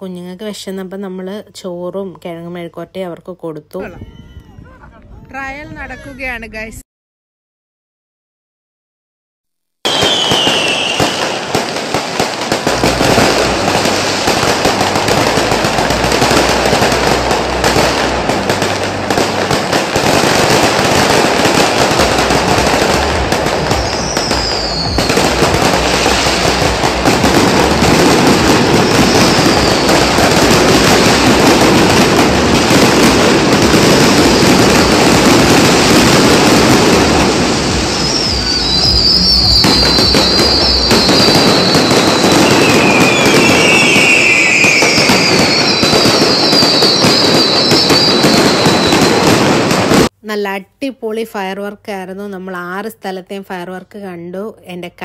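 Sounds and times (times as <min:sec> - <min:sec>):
firework whistles falling in pitch: 0:09.8 - 0:11.7, 0:23.7 - 0:26.9, 0:27.9 - 0:31.7, 0:36.6 - 0:49.8
fireworks bangs and crackling: 0:09.8 - 0:50.1.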